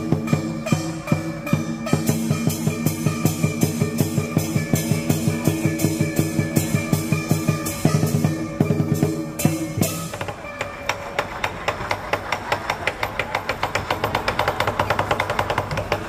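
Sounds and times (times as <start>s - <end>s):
cymbals crashing: 0.0s - 10.6s
drums beating: 0.0s - 16.0s.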